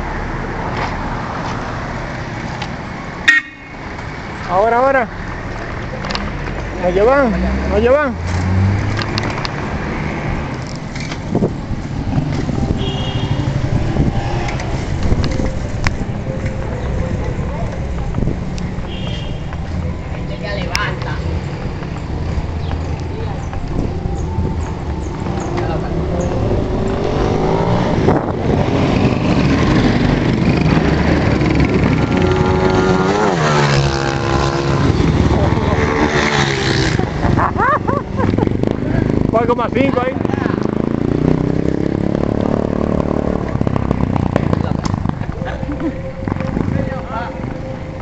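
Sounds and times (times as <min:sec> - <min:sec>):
road and air hiss: 0:00.0 - 0:06.6
wind buffeting microphone: 0:08.7 - 0:16.4, 0:20.9 - 0:48.0
motorcycle engine running: 0:21.4 - 0:47.9.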